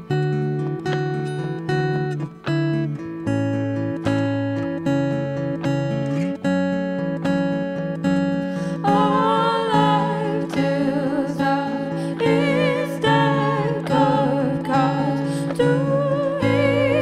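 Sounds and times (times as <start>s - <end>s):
acoustic guitar chords: 0.0s - 17.0s
ukulele chords: 8.5s - 17.0s
woman singing with vibrato: 8.6s - 17.0s.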